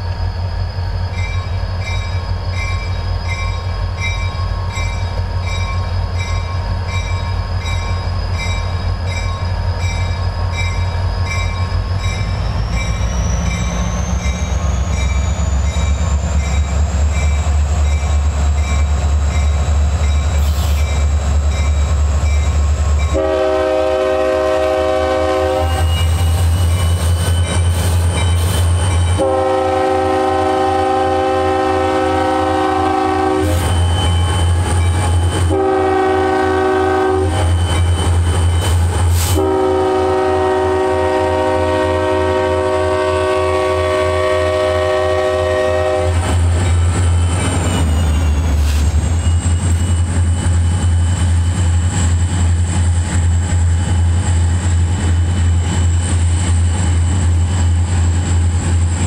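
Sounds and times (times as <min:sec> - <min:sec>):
diesel locomotive rumbling: 0:00.0 - 0:59.0
locomotive high whine: 0:00.0 - 0:59.0
locomotive air horn blasts: 0:23.1 - 0:26.2, 0:29.2 - 0:33.7, 0:35.5 - 0:37.4, 0:39.2 - 0:46.3.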